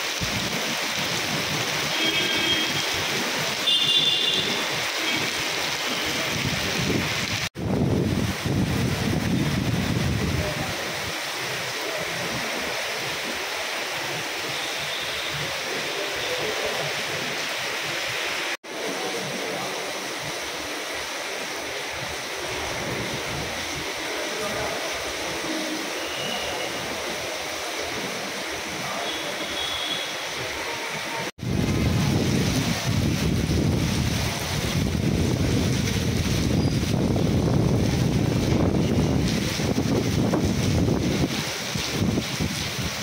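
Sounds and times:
heavy rain falling: 0.0 - 43.0.

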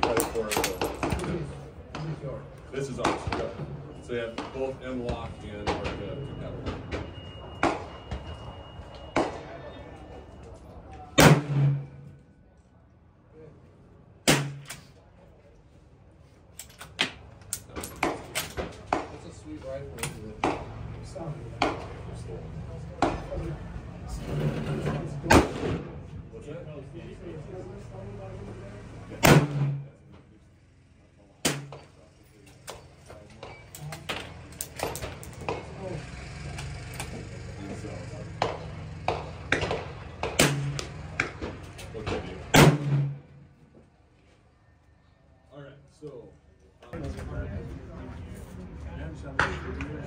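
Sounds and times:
rifle shot with echo: 11.2 - 11.9, 14.2 - 14.8, 25.3 - 26.0, 29.2 - 29.9, 31.4 - 31.8, 39.6 - 40.8, 42.5 - 43.2
gunshot bang: 11.2 - 12.0, 14.3 - 14.7, 25.2 - 26.0, 29.2 - 29.9, 39.6 - 40.8, 42.5 - 43.2.

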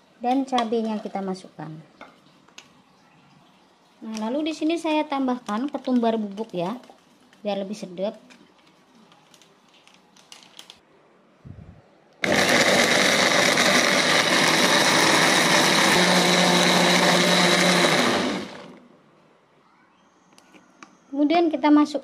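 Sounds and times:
blender running: 12.2 - 18.8.

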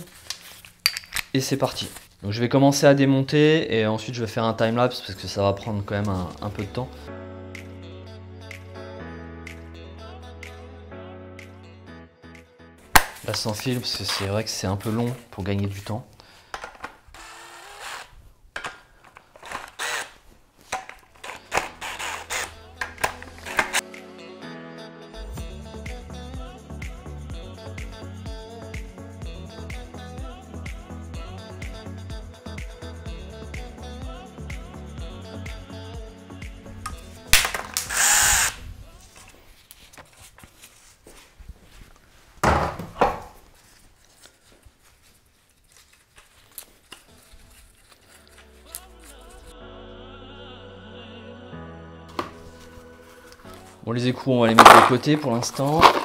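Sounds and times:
cordless drill running: 17.1 - 18.2, 19.4 - 20.2, 21.3 - 22.6, 37.8 - 38.6.

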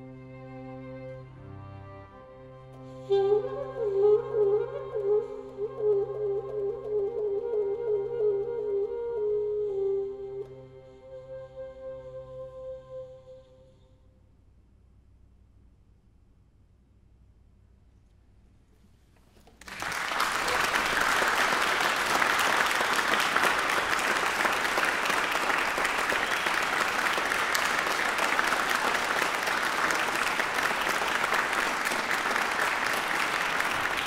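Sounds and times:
audience applause: 19.6 - 34.0.

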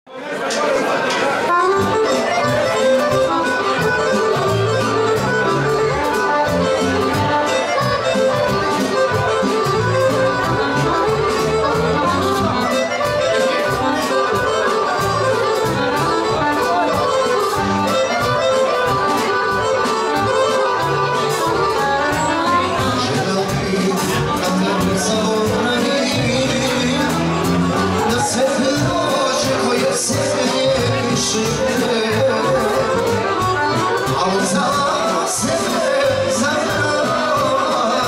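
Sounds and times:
accordions playing: 1.2 - 38.0
bass line: 1.6 - 38.0
drum beat: 1.8 - 38.0.

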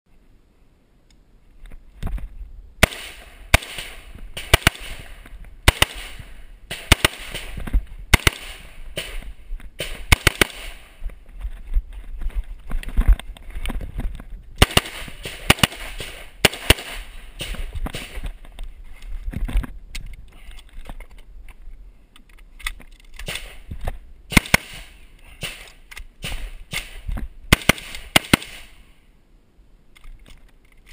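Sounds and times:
rifle gunshots: 2.8 - 11.0, 14.6 - 18.3, 24.3 - 28.8.

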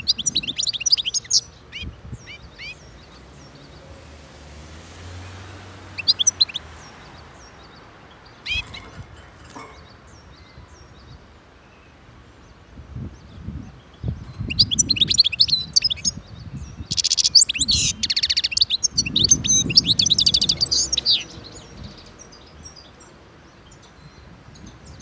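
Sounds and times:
bird twittering chirps: 0.0 - 3.9, 5.2 - 9.0, 13.2 - 25.0.

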